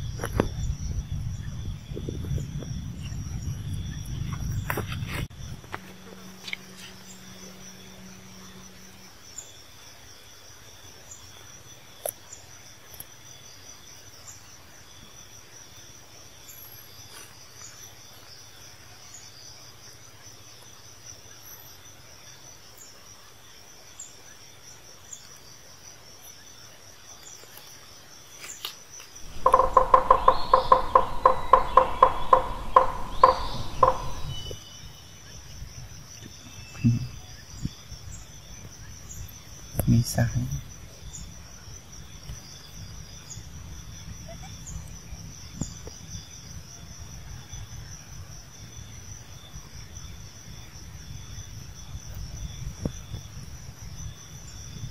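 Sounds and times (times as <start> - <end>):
insects trilling: 0.0 - 54.9
loud rapidly pulsing sound: 29.2 - 34.5.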